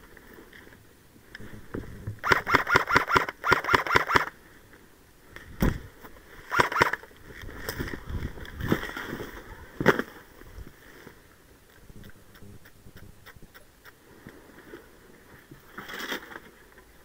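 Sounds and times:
airsoft rifle shots: 0:02.2 - 0:04.3, 0:06.5 - 0:07.0.

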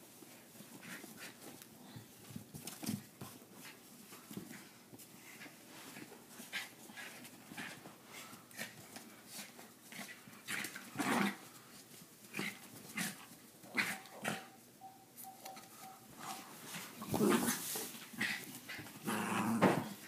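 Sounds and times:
small dog growling: 0:19.0 - 0:19.9.

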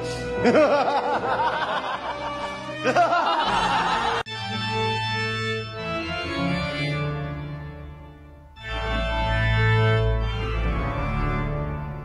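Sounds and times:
organ playing chords: 0:00.3 - 0:12.0.

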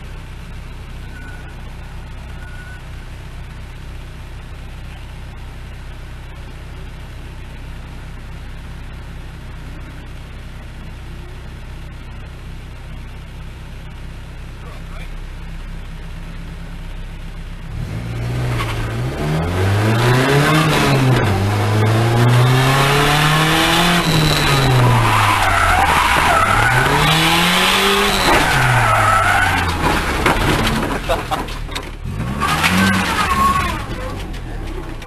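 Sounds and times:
car engine revving: 0:15.0 - 0:35.0
tyres squealing: 0:19.8 - 0:35.0.

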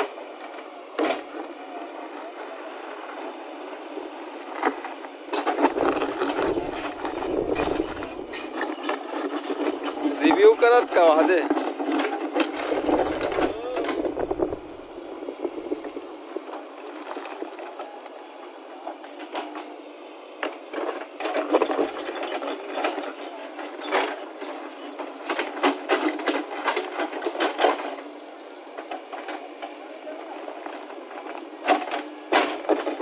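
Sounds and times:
bucket scraping asphalt: 0:05.6 - 0:08.8, 0:12.5 - 0:16.0
clattering debris: 0:05.6 - 0:09.0, 0:12.4 - 0:16.0
backhoe engine running: 0:05.7 - 0:08.8, 0:12.6 - 0:16.0.

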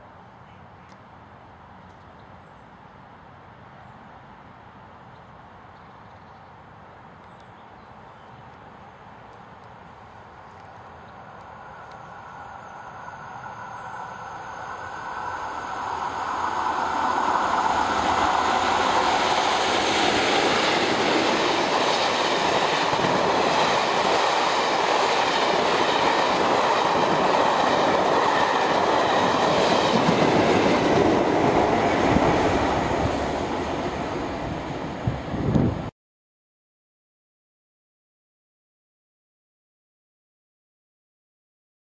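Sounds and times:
diesel locomotive passing: 0:11.2 - 0:35.9
train wheels clattering on rails: 0:16.3 - 0:35.6.

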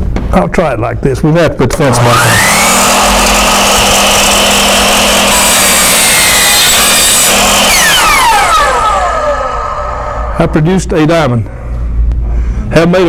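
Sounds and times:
miter saw cutting wood: 0:01.8 - 0:10.9.

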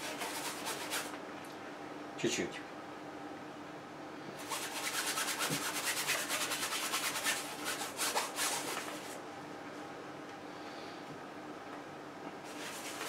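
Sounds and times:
paintbrush scrubbing on canvas: 0:00.0 - 0:01.1, 0:04.4 - 0:09.2, 0:12.5 - 0:13.0.

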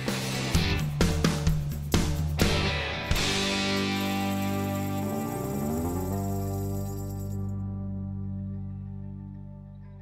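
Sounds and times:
guitar music: 0:02.4 - 0:10.0.

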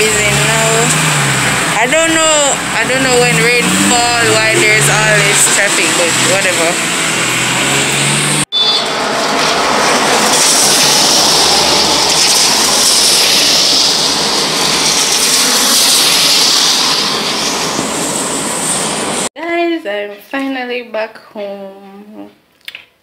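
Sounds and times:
tyres hissing on wet road: 0:03.0 - 0:19.3.

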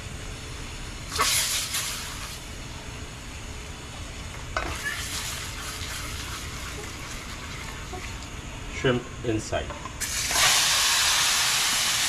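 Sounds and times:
hot oil sizzling: 0:01.1 - 0:02.8, 0:04.6 - 0:08.5, 0:10.0 - 0:12.0.

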